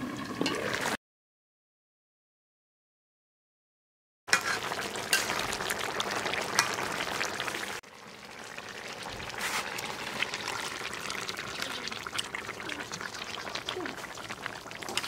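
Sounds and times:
curry bubbling in a pan: 0:04.3 - 0:15.0.

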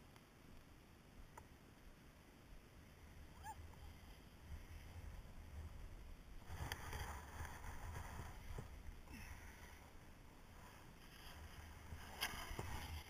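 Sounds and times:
wind rumble on microphone: 0:02.9 - 0:13.0
skis scraping on snow: 0:03.8 - 0:13.0.

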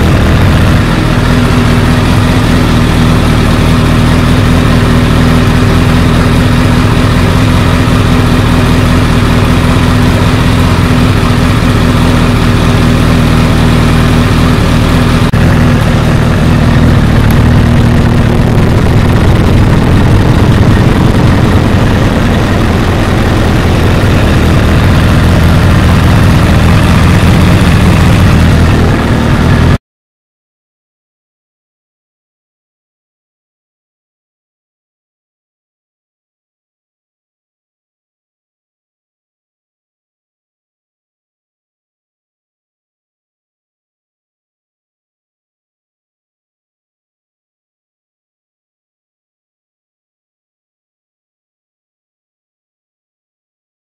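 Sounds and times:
motorcycle engine idling: 0:00.0 - 0:29.8.

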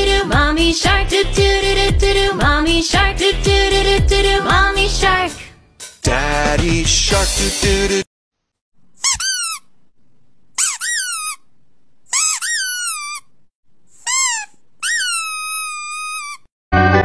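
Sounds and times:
puppy whining: 0:12.2 - 0:13.3, 0:14.0 - 0:16.5.

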